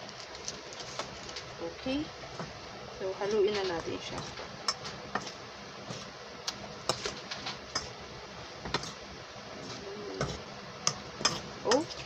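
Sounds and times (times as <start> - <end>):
steady hiss: 0.0 - 11.9.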